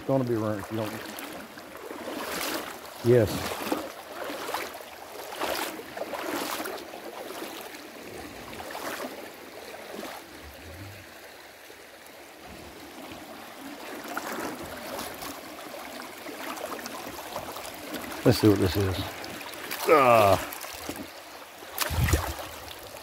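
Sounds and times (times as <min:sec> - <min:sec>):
creek water rippling over rocks: 0:00.0 - 0:23.0
wading splashes: 0:00.0 - 0:23.0.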